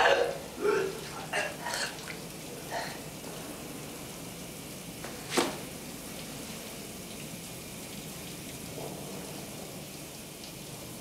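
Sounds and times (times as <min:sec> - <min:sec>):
shower water hissing: 0:00.0 - 0:11.0.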